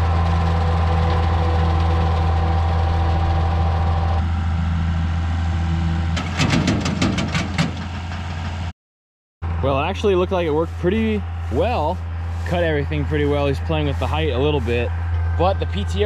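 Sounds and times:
tractor diesel engine running: 0.0s - 8.7s, 9.4s - 16.0s
sharp knocks and clatter: 6.2s - 8.6s.

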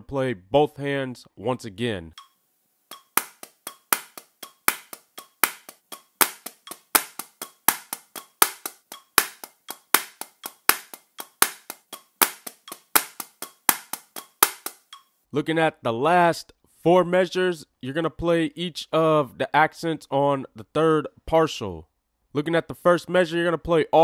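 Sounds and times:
drumsticks striking practice pad: 2.9s - 15.0s.

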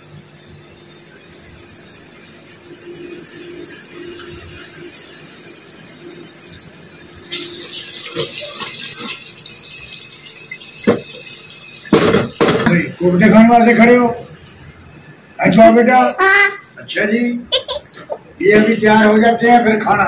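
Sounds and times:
sauce sizzling and bubbling: 0.0s - 15.3s.

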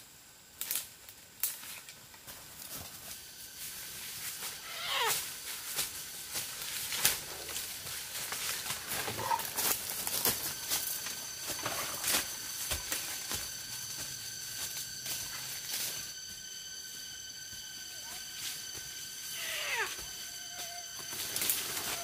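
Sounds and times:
high insect drone: 0.0s - 22.0s
dry leaves crackling underfoot: 1.4s - 22.0s
falling animal call: 4.6s - 5.3s, 19.3s - 22.0s.

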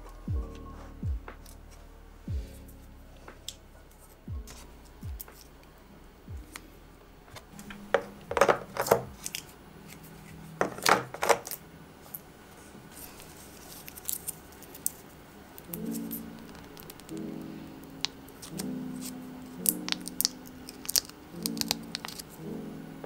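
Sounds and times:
plastic cups clacking together: 7.9s - 9.1s, 10.6s - 11.6s.

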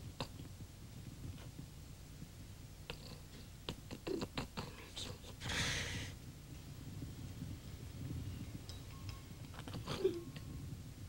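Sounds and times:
low steady hum: 0.0s - 11.0s
man breathing laboured: 5.4s - 6.2s.

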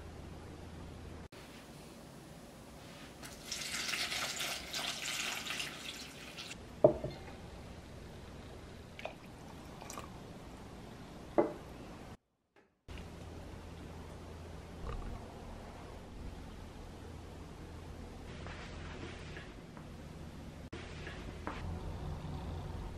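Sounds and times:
water poured into a bowl: 3.2s - 6.6s
glass pitcher knocking on table: 6.8s - 7.1s.

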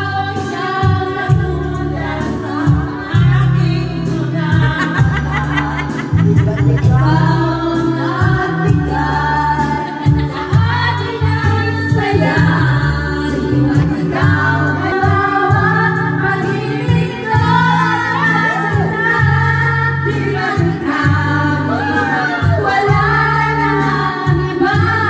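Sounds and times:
backing track with bass line: 0.0s - 25.0s
voices singing along: 0.0s - 25.0s
woman singing into microphone: 0.0s - 25.0s.

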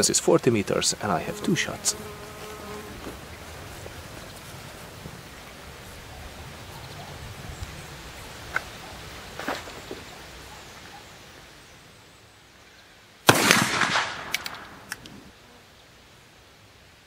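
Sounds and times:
rifle shot: 13.3s - 14.9s.

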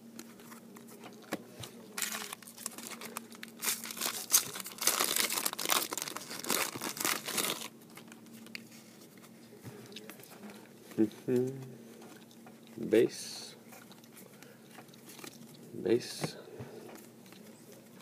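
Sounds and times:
foil wrapper tearing and crinkling: 2.0s - 8.1s.

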